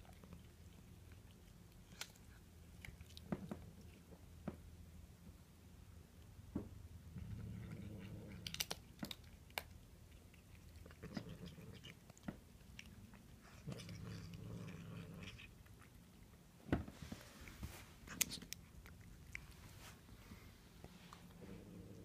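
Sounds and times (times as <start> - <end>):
cat chewing and crunching: 0.0 - 5.2, 5.8 - 22.0.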